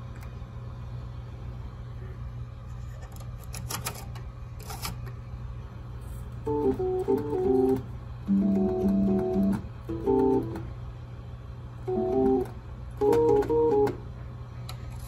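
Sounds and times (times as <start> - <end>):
organ chords: 6.4 - 10.8, 11.8 - 14.2
electric organ low buzz: 6.4 - 10.9, 11.8 - 14.2.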